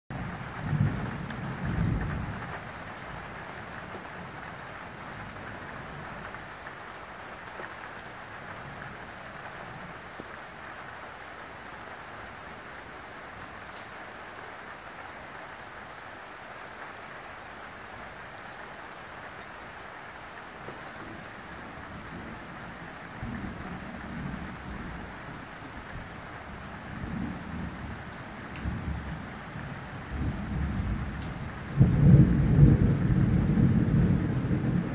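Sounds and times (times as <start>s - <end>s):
steady rain falling: 0.1s - 34.9s
thunder rumbling: 30.1s - 34.9s.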